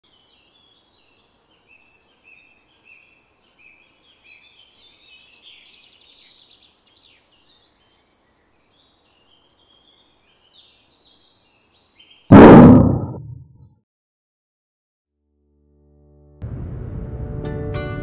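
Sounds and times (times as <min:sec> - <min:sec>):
birds chirping: 0:00.1 - 0:13.2.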